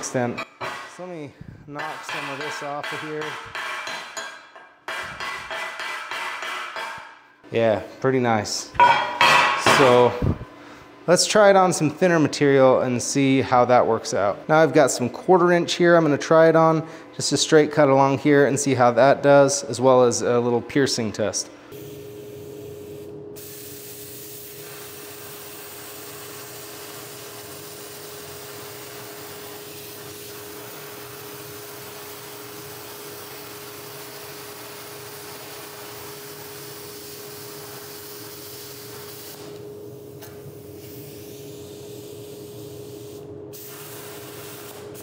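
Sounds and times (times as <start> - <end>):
plasma cutter arc hissing: 21.8 - 39.6, 40.6 - 45.0.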